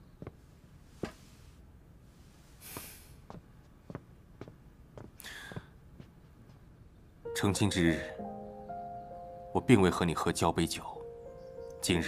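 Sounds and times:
faint footsteps: 0.0 - 1.6, 2.3 - 7.0.

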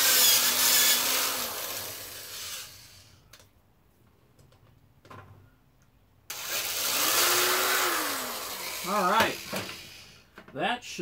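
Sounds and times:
electric drill spinning: 0.0 - 3.2, 6.3 - 10.3.

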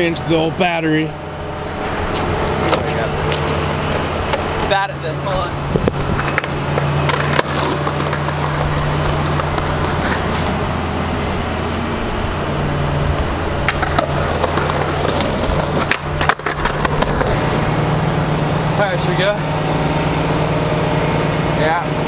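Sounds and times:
skateboard rolling on concrete: 1.9 - 18.1
skateboard clacks: 6.2 - 10.6, 13.2 - 17.4.

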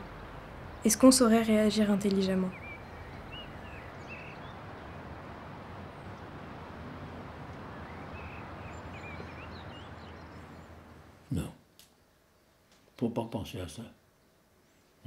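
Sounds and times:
even rushing noise: 0.0 - 11.3.

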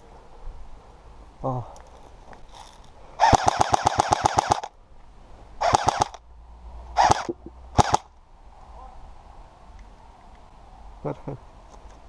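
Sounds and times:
airsoft gun firing bursts: 3.2 - 4.7, 5.6 - 6.2, 7.0 - 8.1.

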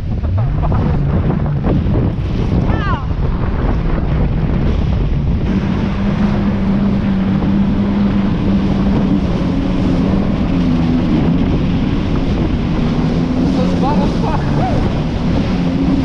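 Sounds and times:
jet ski engine drone: 0.0 - 16.0
rushing water and spray: 0.0 - 16.0
wind buffeting microphone: 0.0 - 16.0.

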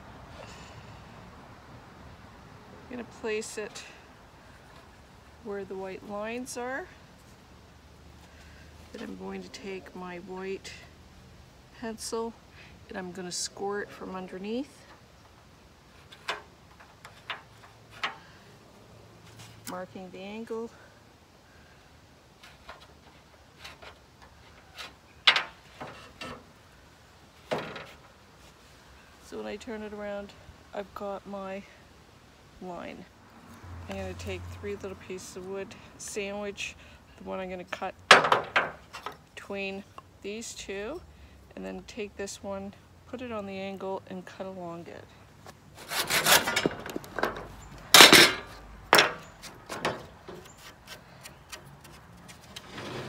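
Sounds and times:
hand saw rasping through wood: 45.8 - 46.7.

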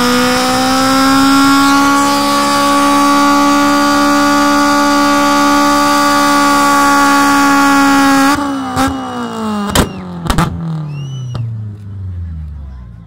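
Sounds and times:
car engine revving high: 0.0 - 12.8
sharp cracks: 9.6 - 11.9.

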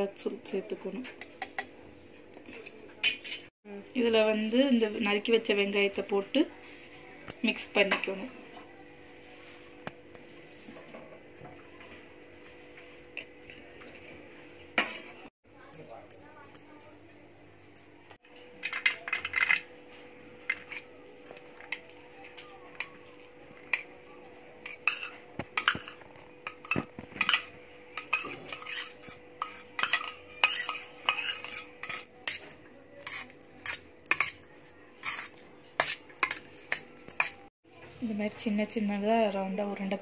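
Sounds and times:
spoon scraping metal bowl: 2.4 - 3.5, 14.8 - 15.3, 24.6 - 37.5.

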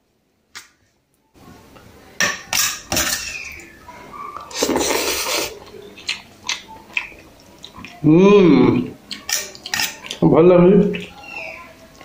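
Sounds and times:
spoon clinking on steel plate: 2.2 - 3.4.

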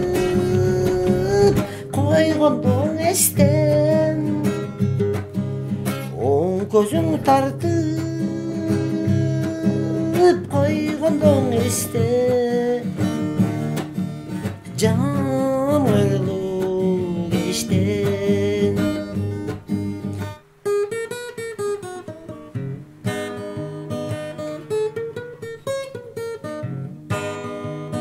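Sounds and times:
strummed acoustic guitar: 0.0 - 28.0.

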